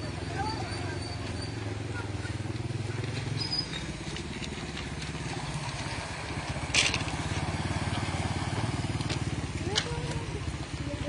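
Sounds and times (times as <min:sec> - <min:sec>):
small motorcycle engine throbbing: 0:00.0 - 0:11.0.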